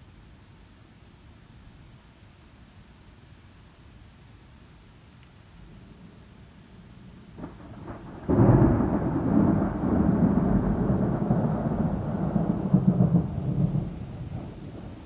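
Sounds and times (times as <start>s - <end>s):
thunder rumble: 5.7s - 15.0s
thunder crack: 7.4s - 15.0s.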